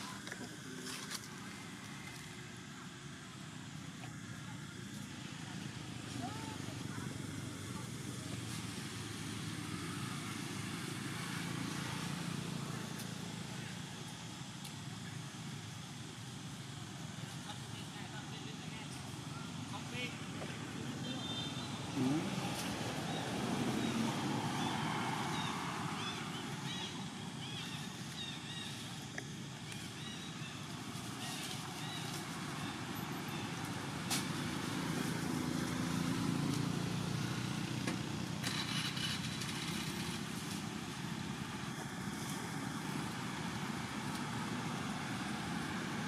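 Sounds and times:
vehicle engines rumbling: 0:00.0 - 0:46.0
faint voices: 0:16.5 - 0:24.9
louder engine passing: 0:21.8 - 0:26.7.

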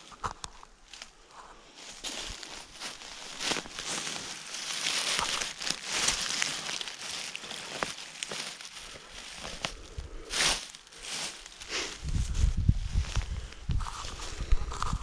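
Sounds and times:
dry leaves rustling and crackling: 0:00.0 - 0:15.0
twigs snapping: 0:02.0 - 0:11.8.

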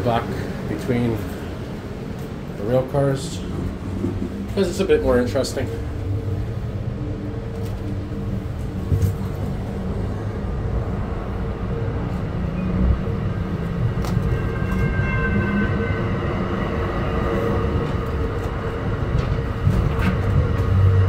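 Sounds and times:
train wheels rumbling on rail: 0:00.0 - 0:21.0
faint high squeal: 0:14.2 - 0:17.6.

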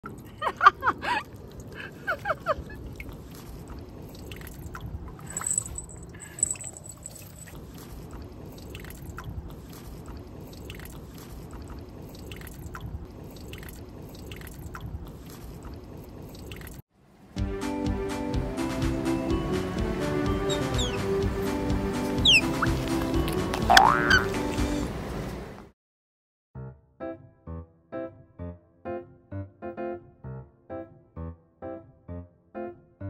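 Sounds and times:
otter lapping water: 0:00.0 - 0:16.8, 0:19.7 - 0:25.0
high-pitched otter calls: 0:20.4 - 0:21.2, 0:22.1 - 0:22.9, 0:23.6 - 0:24.5.

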